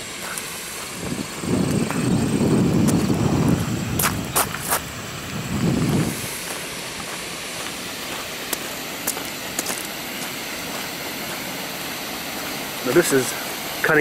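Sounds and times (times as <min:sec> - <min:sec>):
wind and rain hissing: 0:00.0 - 0:14.0
wind buffeting microphone: 0:00.8 - 0:07.2.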